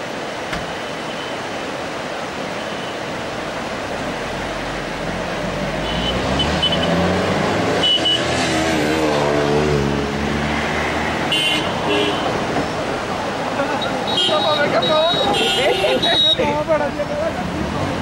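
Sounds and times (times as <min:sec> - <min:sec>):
river rapids rushing: 0:00.0 - 0:18.0
vehicle engine: 0:03.6 - 0:13.8.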